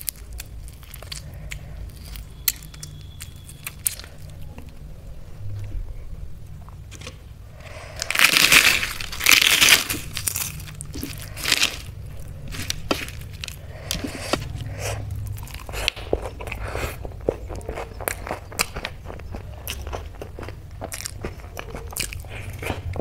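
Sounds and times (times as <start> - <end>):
soft crunches of eating: 0.0 - 5.9, 6.6 - 23.0
papad crackling being crushed: 8.0 - 14.6.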